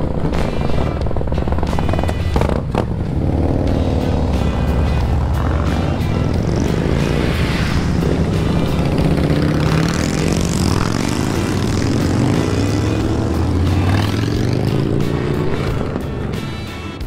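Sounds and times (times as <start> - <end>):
motorcycles riding past: 0.0 - 17.0.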